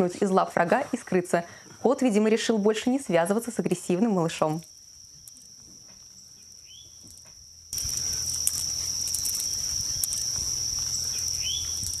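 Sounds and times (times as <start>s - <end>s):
insects trilling: 0.0s - 12.0s.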